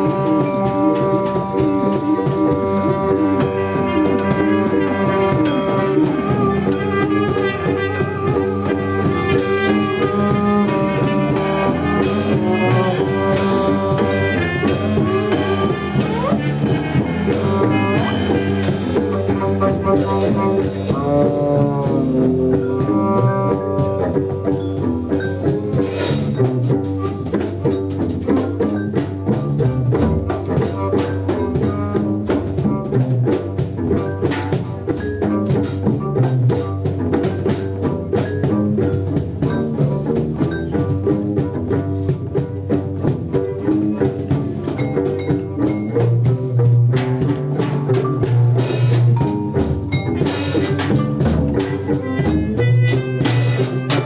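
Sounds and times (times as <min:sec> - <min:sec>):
muted trumpet: 0:00.0 - 0:25.2, 0:30.2 - 0:33.6, 0:51.5 - 0:54.0
drum kit and percussion groove: 0:00.0 - 0:54.0
plucked gimbri: 0:00.0 - 0:54.0.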